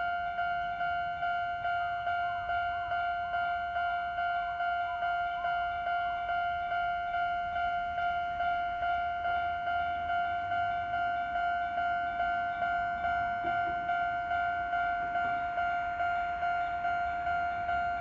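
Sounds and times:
level crossing electronic bell ringing: 0:00.0 - 0:18.0.

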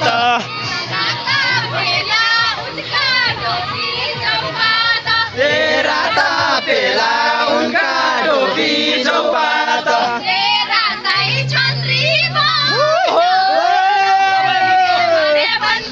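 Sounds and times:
group singing in chorus: 0:00.0 - 0:12.8.

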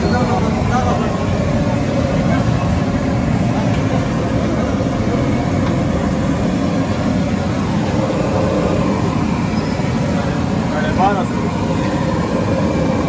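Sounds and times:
gas burner roaring: 0:00.0 - 0:13.0.

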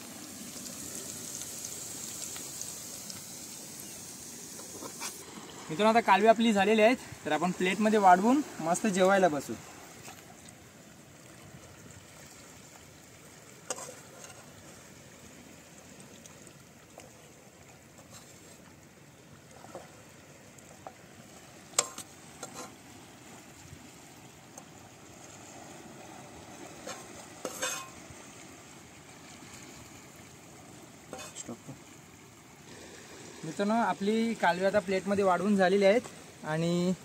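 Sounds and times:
plastic spatula scraping a frying pan: 0:22.4 - 0:22.8, 0:26.8 - 0:28.0, 0:31.1 - 0:31.4.

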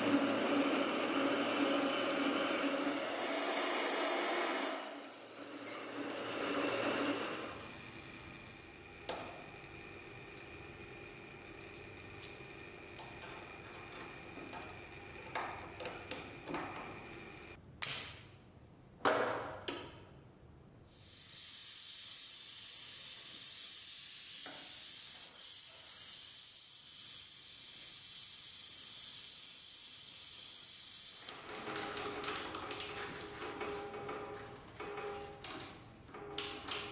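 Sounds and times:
gas torch flame hissing: 0:20.9 - 0:31.3.

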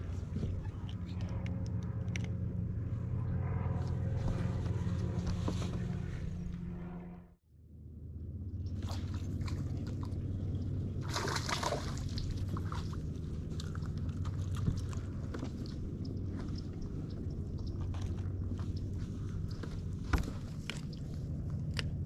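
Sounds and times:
trolling motor humming: 0:00.0 - 0:22.0
water lapping at hull: 0:08.6 - 0:22.0.

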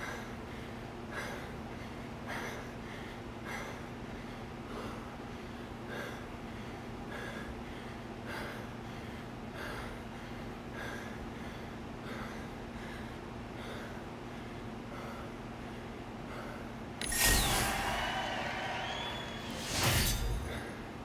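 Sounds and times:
person breathing hard: 0:00.0 - 0:16.8
steady low hum: 0:00.0 - 0:21.0.

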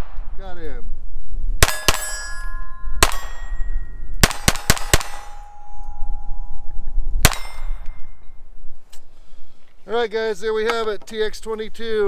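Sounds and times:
wind rumble on microphone: 0:00.0 - 0:01.7, 0:02.3 - 0:09.6
pistol shots: 0:01.6 - 0:05.6, 0:07.2 - 0:08.0
steel targets ringing: 0:01.6 - 0:08.4.

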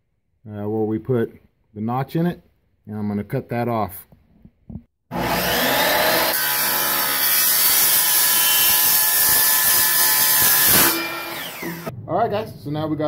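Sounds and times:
saw blade cutting plastic pipe: 0:05.1 - 0:11.9.

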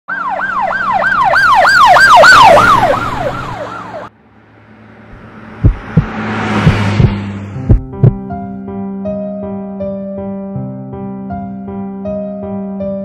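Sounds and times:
emergency siren yelping: 0:00.1 - 0:04.1
rising whoosh: 0:02.0 - 0:08.3
deep thuds: 0:05.1 - 0:08.3.

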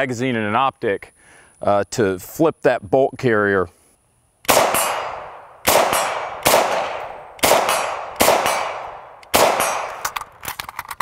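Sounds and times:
rifle shots with echo: 0:04.5 - 0:10.3.

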